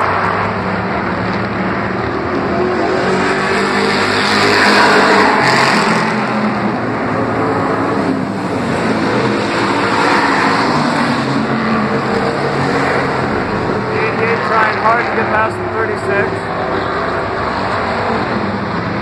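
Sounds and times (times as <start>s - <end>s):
race car engines: 0.0s - 19.0s.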